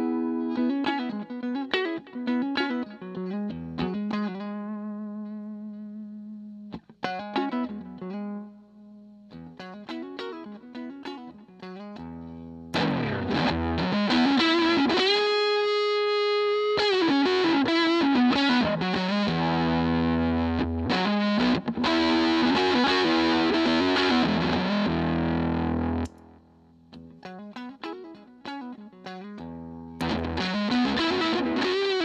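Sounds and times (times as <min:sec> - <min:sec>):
clean electric guitar: 0:00.0 - 0:32.0
distorted fuzz guitar lead: 0:12.7 - 0:26.4, 0:29.5 - 0:32.0.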